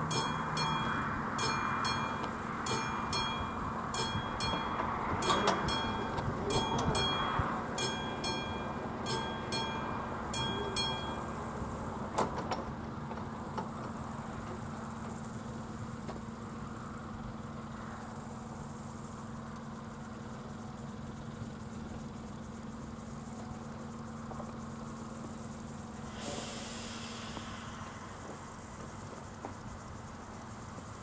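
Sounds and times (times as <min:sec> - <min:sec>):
level crossing warning bell: 0:00.0 - 0:12.1
steady low hum: 0:00.0 - 0:31.0.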